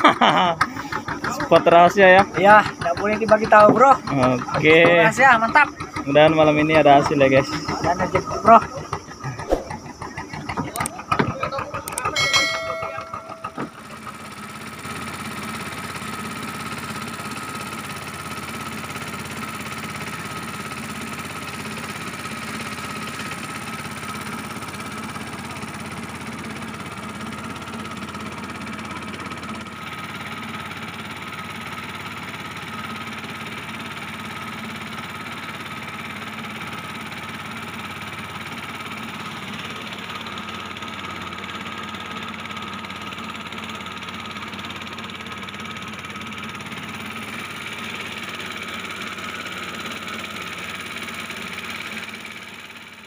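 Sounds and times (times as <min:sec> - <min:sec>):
boat engine droning: 0:00.0 - 0:53.0
short run of tones: 0:07.4 - 0:10.0, 0:12.2 - 0:14.0.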